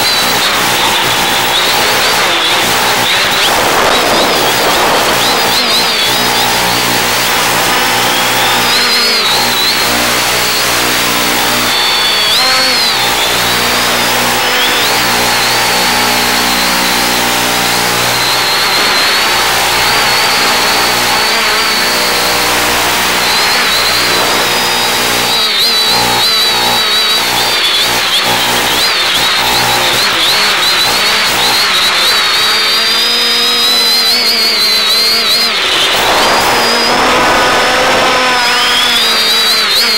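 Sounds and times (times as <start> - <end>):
drone motors whining: 0.0 - 39.9
radio hiss: 0.1 - 25.4, 35.6 - 38.9
low hum: 35.8 - 38.8.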